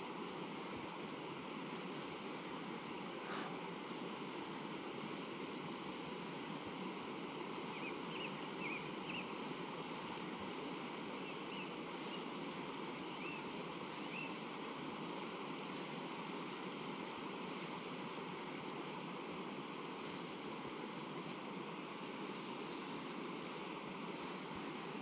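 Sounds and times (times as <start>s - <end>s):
river flowing: 0.1s - 7.8s
short bird chirps: 3.2s - 3.7s.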